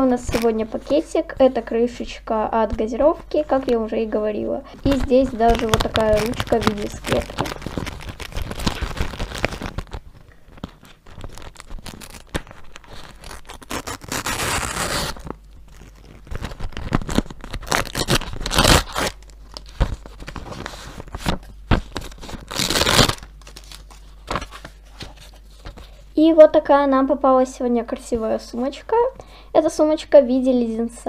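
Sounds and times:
paper crinkling and rustling: 0:04.7 - 0:26.0
paper tearing: 0:04.9 - 0:10.0, 0:10.8 - 0:25.4.

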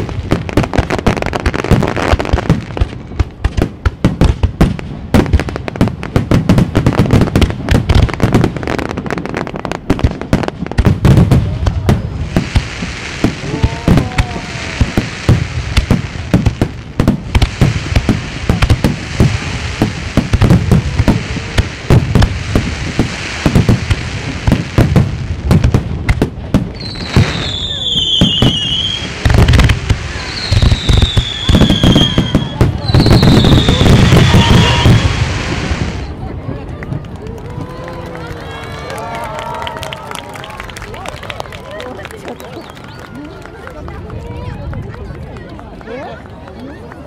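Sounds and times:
firework booms: 0:00.0 - 0:37.0
firework stars crackling: 0:00.0 - 0:47.0.

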